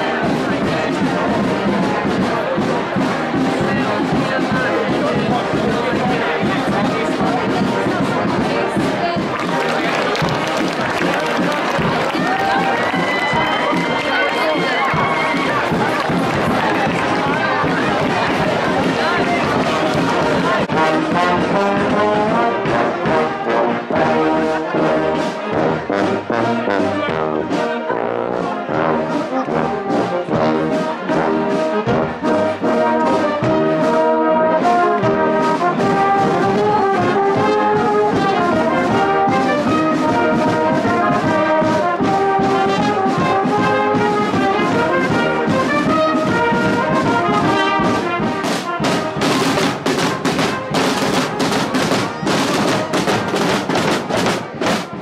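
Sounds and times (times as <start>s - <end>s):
marching brass band playing: 0.0s - 55.0s
snare drum beat: 0.1s - 23.2s, 35.0s - 55.0s.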